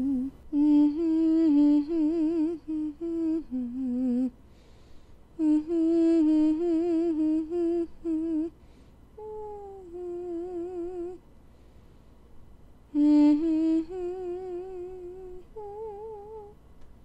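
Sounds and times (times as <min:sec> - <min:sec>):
person humming a slow tune: 0:00.0 - 0:04.4, 0:05.4 - 0:08.6, 0:09.2 - 0:11.2, 0:12.9 - 0:16.6.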